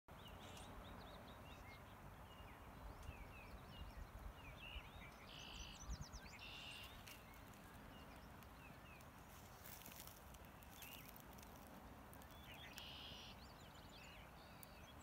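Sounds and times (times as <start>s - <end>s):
songbirds chirping: 0.1s - 15.0s
buzzy bird calls: 5.2s - 15.0s
river flowing: 6.3s - 15.0s.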